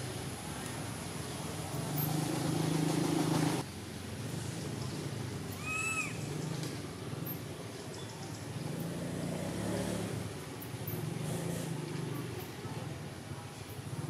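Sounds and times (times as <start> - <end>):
short high rising and falling call: 5.6 - 6.3.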